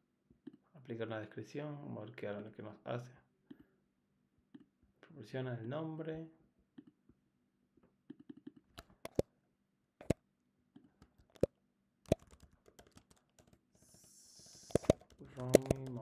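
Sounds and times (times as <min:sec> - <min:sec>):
mouse clicks: 0:08.1 - 0:09.2, 0:11.0 - 0:11.5, 0:12.1 - 0:16.0
keyboard keystrokes: 0:08.8 - 0:09.2, 0:12.1 - 0:13.6, 0:14.5 - 0:16.0
soft hiss: 0:13.8 - 0:14.9.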